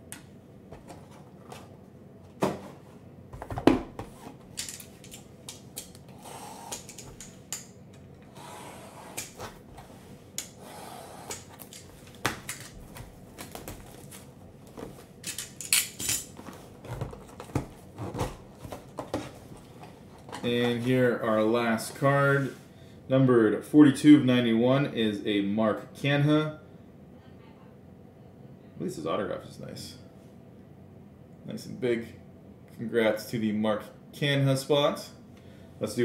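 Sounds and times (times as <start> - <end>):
cardboard boxes clicking and knocking: 16.4 - 19.4.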